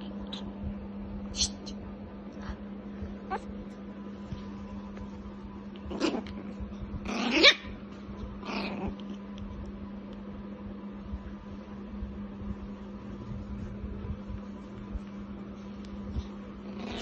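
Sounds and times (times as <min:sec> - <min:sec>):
puppy barking: 0:07.3 - 0:07.8.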